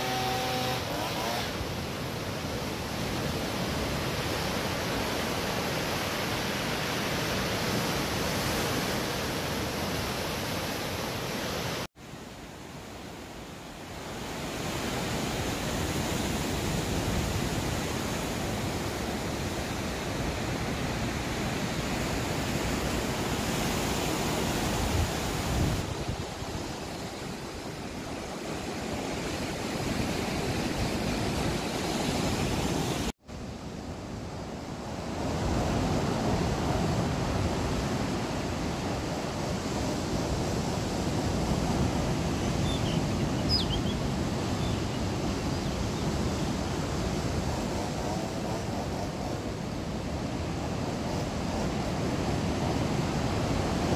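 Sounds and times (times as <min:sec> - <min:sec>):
waves breaking on rocky shore: 0:01.6 - 0:11.9, 0:14.0 - 0:33.1.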